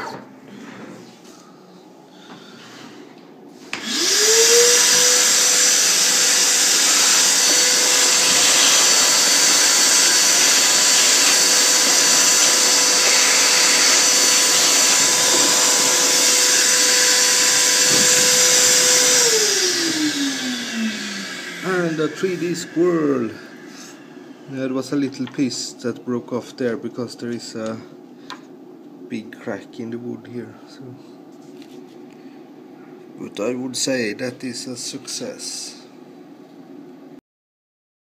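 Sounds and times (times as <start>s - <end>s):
vacuum cleaner running: 3.6s - 25.0s.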